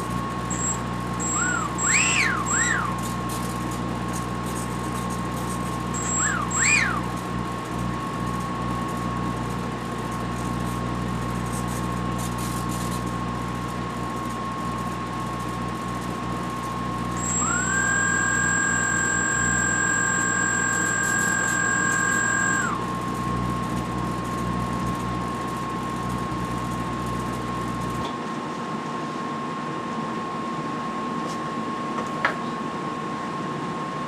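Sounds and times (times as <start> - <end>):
electric motor and propeller whine: 0.0 - 28.0
low electrical hum: 0.0 - 33.8
steady high tone: 0.5 - 3.0, 5.9 - 7.2, 17.1 - 22.9.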